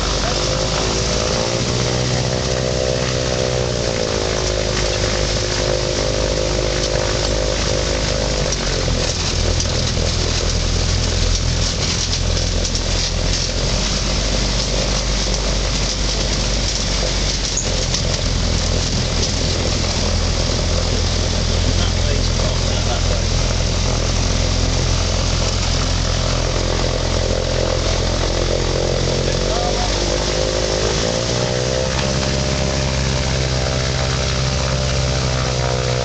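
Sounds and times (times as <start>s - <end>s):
microlight engine and propeller: 0.0s - 36.0s.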